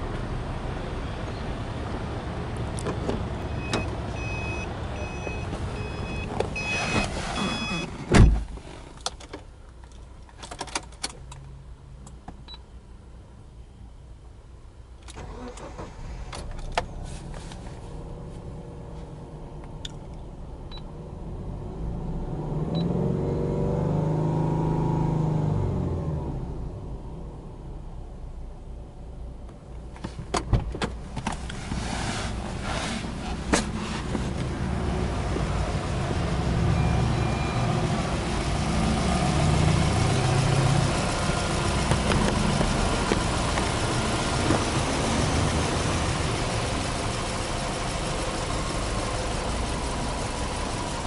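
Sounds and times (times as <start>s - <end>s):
car engine starting and idling: 0.0s - 51.0s
car beeping chime: 3.4s - 7.9s
car door shutting: 5.2s - 8.8s, 30.0s - 34.5s, 41.8s - 44.9s.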